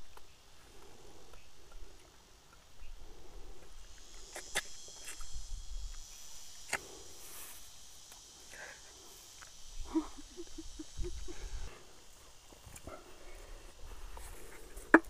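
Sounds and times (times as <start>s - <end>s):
insects chirping: 0.0s - 15.0s.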